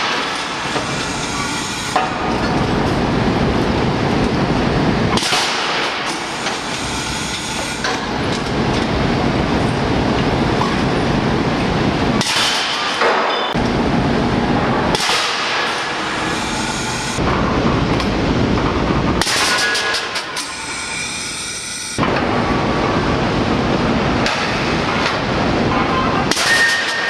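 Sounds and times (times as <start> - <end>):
hammer pounding metal castings: 0.0 - 2.9, 5.1 - 8.4, 12.2 - 13.6, 14.7 - 17.6, 18.6 - 20.6, 24.2 - 27.0.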